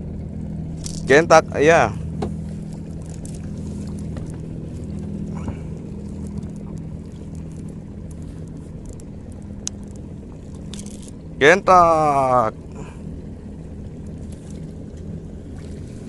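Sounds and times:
boat motor humming: 0.0s - 16.0s
faint clicks: 6.2s - 11.2s.

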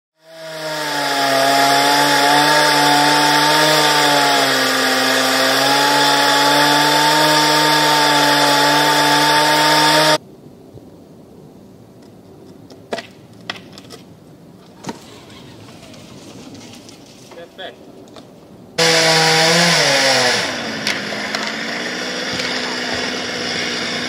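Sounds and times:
chainsaw engine at high revs: 0.2s - 10.2s, 18.8s - 24.0s.

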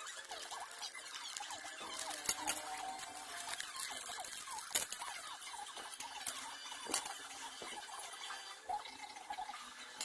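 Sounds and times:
plastic parts clicking: 0.1s - 7.6s.

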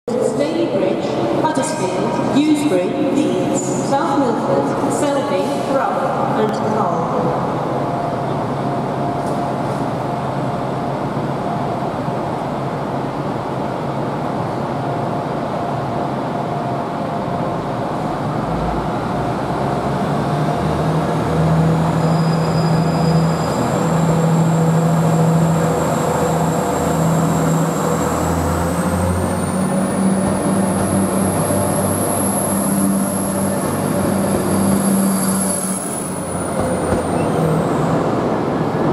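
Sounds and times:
train diesel engines running: 0.1s - 38.9s.

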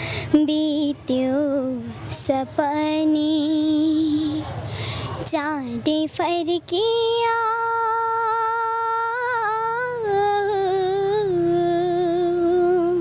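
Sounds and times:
girl singing into a microphone: 0.0s - 13.0s.

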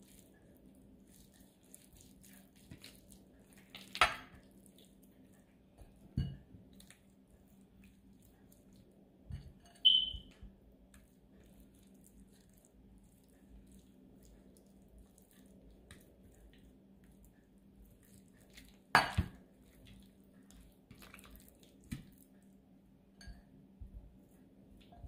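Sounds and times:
hands squishing wet marinade: 0.0s - 23.0s
brief high squeak: 9.8s - 10.3s.

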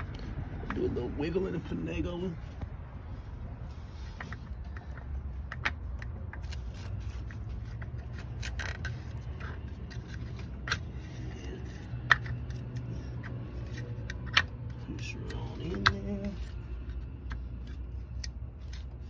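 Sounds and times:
steady low hum: 0.0s - 19.0s
metal parts clicking and scraping: 4.1s - 19.0s.

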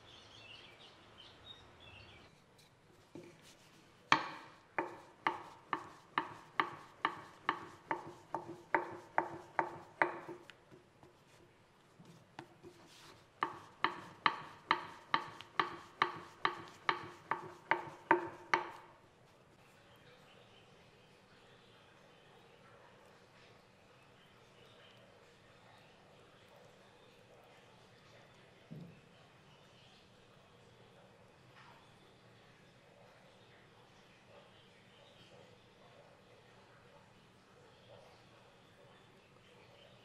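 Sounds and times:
rolling pin clacking on stone: 4.1s - 11.2s, 12.4s - 18.9s.

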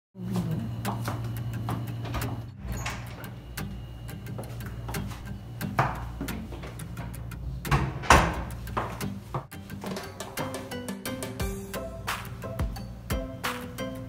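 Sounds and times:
door closing knock: 7.7s - 8.6s.

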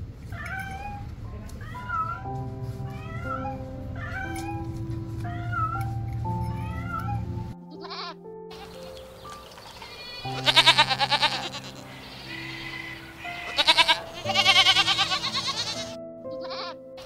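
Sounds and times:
soft background music: 0.5s - 17.0s
goats bleating: 6.9s - 8.9s, 9.8s - 16.8s.

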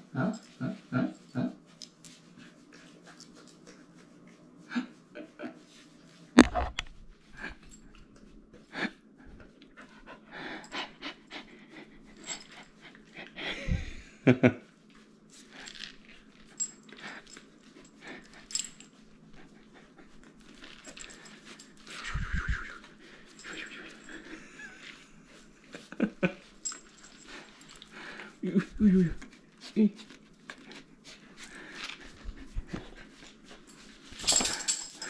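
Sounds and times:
dog panting: 2.1s - 4.8s, 8.6s - 13.6s, 16.4s - 22.1s, 22.8s - 28.5s, 29.1s - 35.0s.

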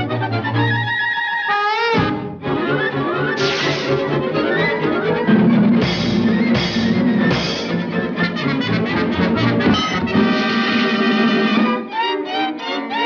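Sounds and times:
orchestral cartoon music: 0.0s - 13.0s
loud crashing hits: 3.4s - 4.1s, 5.6s - 8.0s
sharp percussive hits: 3.4s - 4.2s, 5.7s - 8.2s.

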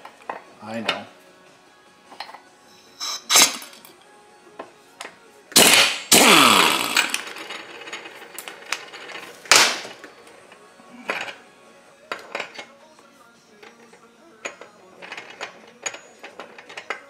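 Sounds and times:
pneumatic impact wrench hammering: 3.0s - 3.7s, 5.5s - 8.1s, 9.5s - 10.0s.

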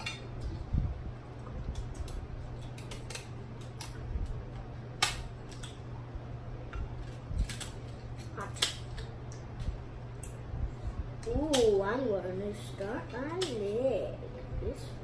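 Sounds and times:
shears cracking crab shells: 1.6s - 5.9s, 6.7s - 10.4s, 11.2s - 11.8s, 13.1s - 13.8s.

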